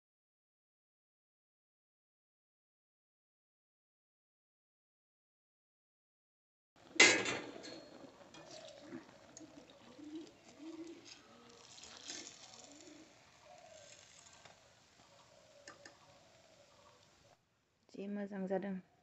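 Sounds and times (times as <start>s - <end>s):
metal utensils clanking on wok: 7.0s - 8.8s.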